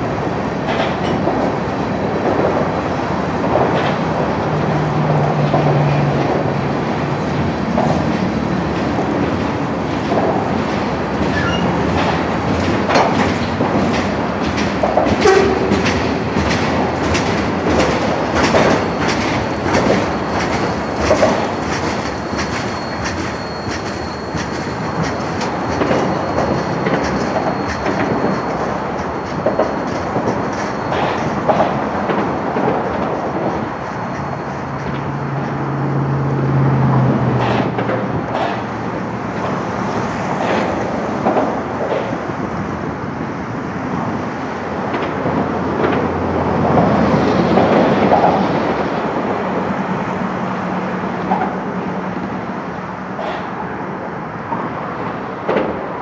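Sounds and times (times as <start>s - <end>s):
train wheels clacking over rail joints: 0.0s - 43.0s, 43.9s - 50.2s, 51.0s - 52.5s, 53.1s - 56.0s
high wheel squeal: 11.3s - 11.9s, 18.6s - 32.0s, 33.2s - 36.1s.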